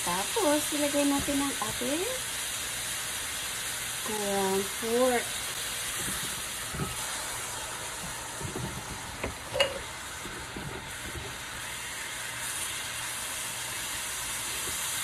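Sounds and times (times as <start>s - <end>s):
meat sizzling in a wok: 0.0s - 15.0s
spatula scraping and knocking pan: 5.8s - 11.4s.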